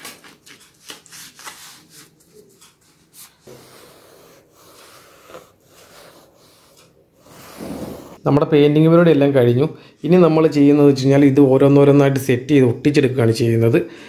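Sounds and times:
foam sponge rubbing wood: 3.1s - 8.2s.

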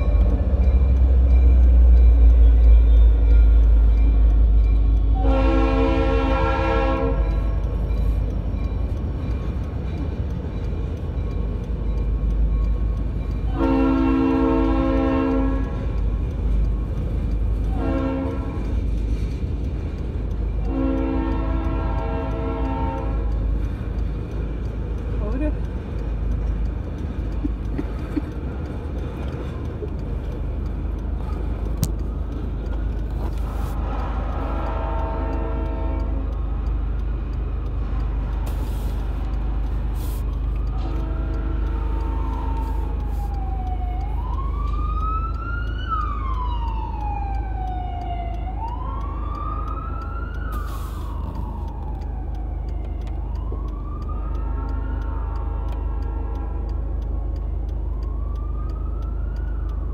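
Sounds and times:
emergency siren wailing: 0.0s - 8.0s, 12.5s - 16.1s, 17.2s - 18.8s, 32.0s - 59.9s
freight train rumbling: 0.0s - 59.9s.

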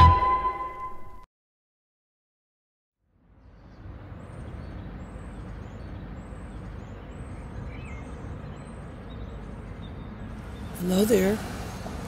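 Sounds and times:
low rumble of traffic: 3.0s - 12.0s
small birds chirping: 3.4s - 12.0s.

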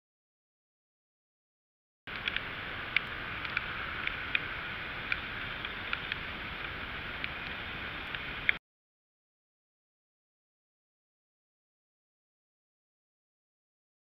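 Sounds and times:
rain and airflow hiss: 2.1s - 8.6s
raindrops ticking on camera housing: 2.1s - 8.6s.

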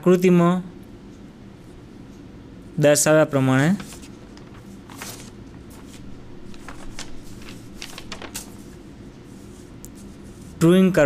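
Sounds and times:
low background hum: 0.0s - 11.0s
faint rustling and clicks: 3.8s - 10.5s.

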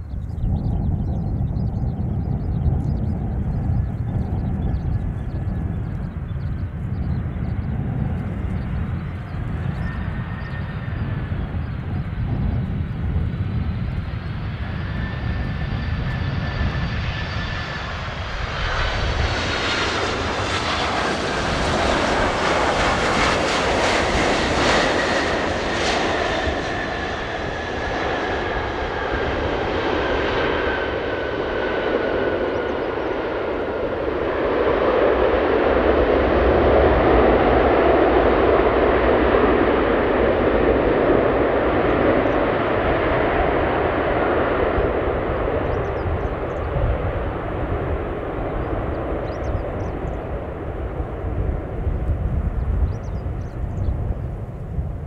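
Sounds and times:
jet engines whining: 0.0s - 55.0s.

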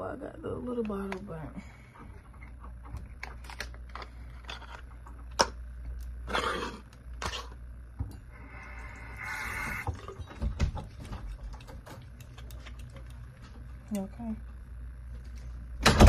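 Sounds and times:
hiss: 9.0s - 9.9s.

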